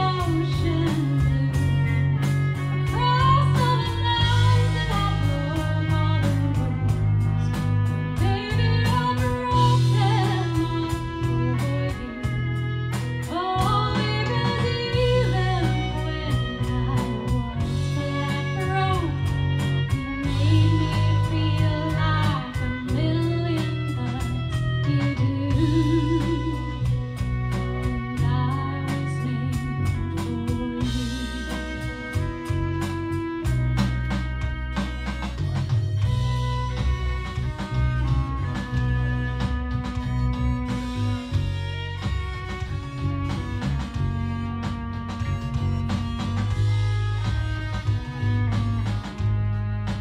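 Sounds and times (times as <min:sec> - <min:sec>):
woman singing: 0:00.0 - 0:12.6, 0:13.2 - 0:33.1
bass guitar: 0:00.0 - 0:50.0
drum kit: 0:00.0 - 0:50.0
fiddle: 0:00.0 - 0:50.0.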